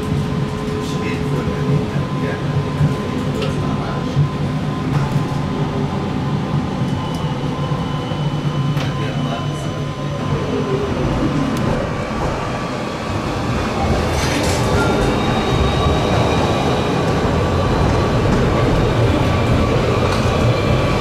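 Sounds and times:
tram heard from street: 0.0s - 21.0s
tram motor hum: 0.0s - 21.0s
tram rolling noise: 0.0s - 21.0s.

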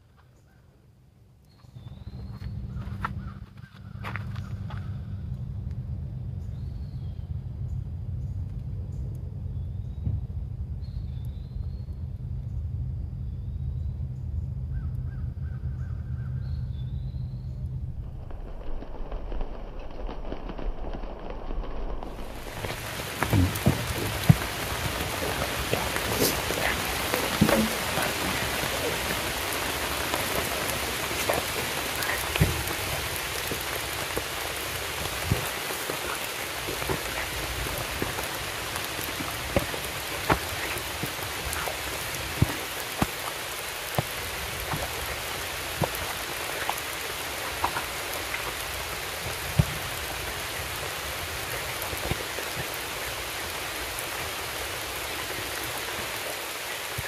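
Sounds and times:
steady rain: 14.4s - 57.0s.

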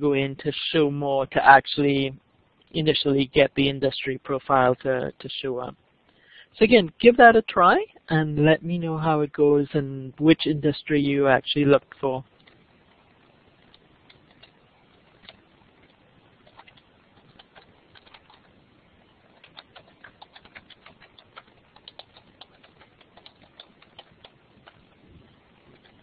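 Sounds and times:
typing on keyboard: 13.7s - 14.6s, 15.2s - 15.4s, 16.4s - 18.5s, 19.3s - 24.9s.

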